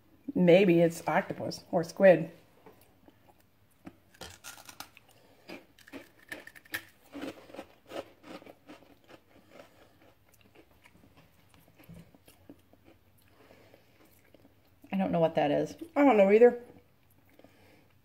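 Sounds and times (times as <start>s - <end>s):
crackers being crunched: 3.8s - 10.8s.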